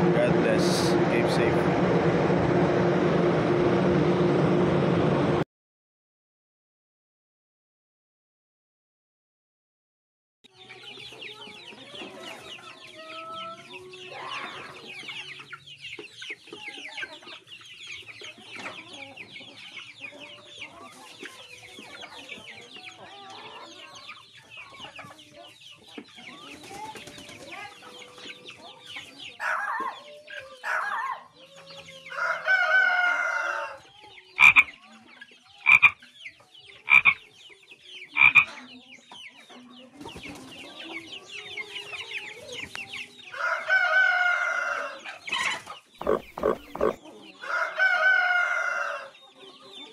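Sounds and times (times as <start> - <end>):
chickens clucking: 10.5 - 49.9
rooster crowing: 32.1 - 33.8, 43.4 - 45.0.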